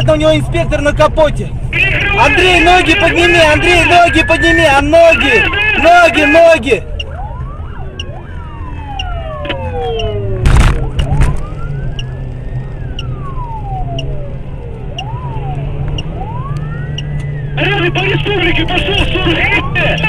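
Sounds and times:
car engine drone: 0:00.0 - 0:20.0
police siren wailing: 0:01.7 - 0:20.0.

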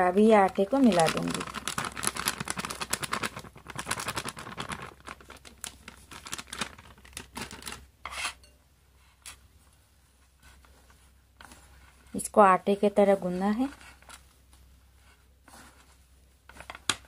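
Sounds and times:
plastic packet crinkling: 0:00.3 - 0:07.9.

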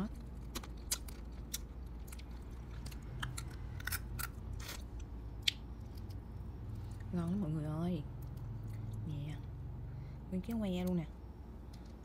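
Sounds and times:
crab shell cracking: 0:00.2 - 0:06.2.

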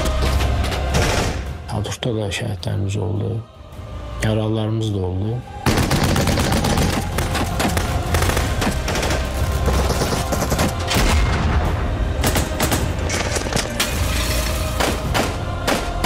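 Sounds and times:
machine-gun and rifle shots: 0:05.6 - 0:10.8.

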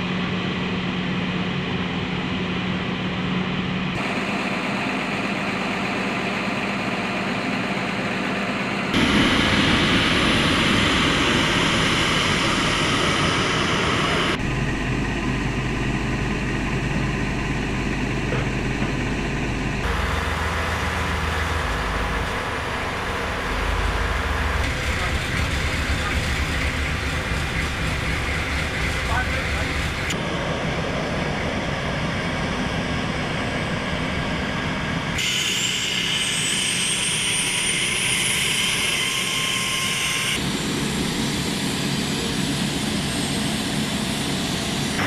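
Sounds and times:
vehicles running: 0:00.0 - 0:35.2
turboprop aircraft engines: 0:00.0 - 0:45.0.

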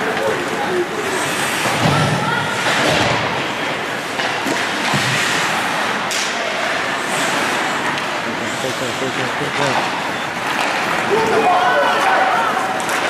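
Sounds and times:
skate blades on ice: 0:00.0 - 0:13.0
hockey sticks and puck knocking: 0:04.0 - 0:06.4, 0:09.8 - 0:11.5, 0:12.7 - 0:13.0.

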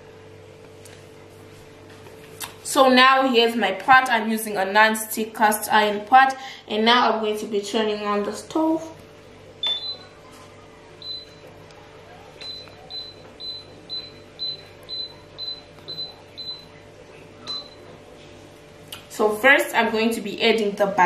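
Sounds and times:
cooktop beeping: 0:09.6 - 0:11.7, 0:12.4 - 0:18.1.

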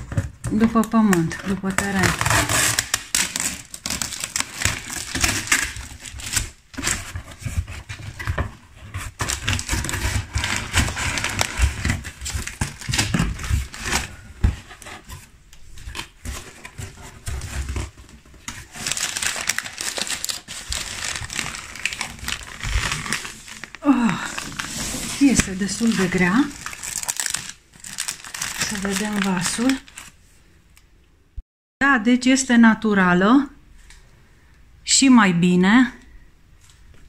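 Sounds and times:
packaging crinkling: 0:00.0 - 0:15.1, 0:15.7 - 0:30.2.

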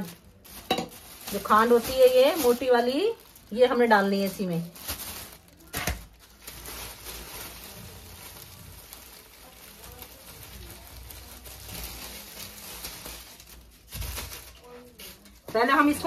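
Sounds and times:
plastic bag rustling: 0:00.0 - 0:16.0.

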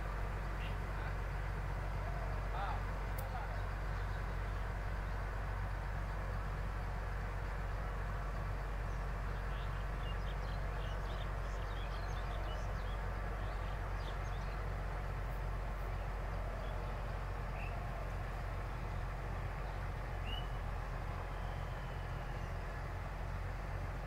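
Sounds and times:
low outdoor rumble: 0:00.0 - 0:24.0
small birds chirping: 0:08.7 - 0:22.6.

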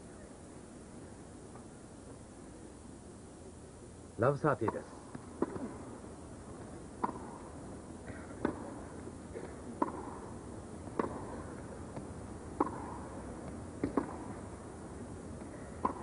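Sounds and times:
tennis ball hits with echo: 0:04.6 - 0:06.0, 0:06.6 - 0:14.7, 0:15.4 - 0:16.0.

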